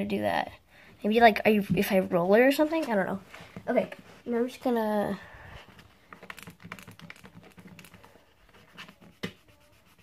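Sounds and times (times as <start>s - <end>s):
eraser scratching on paper: 6.3s - 10.0s.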